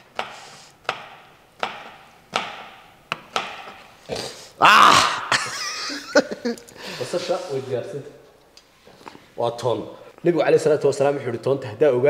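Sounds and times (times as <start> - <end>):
knife chopping on plastic board: 0.1 - 3.9.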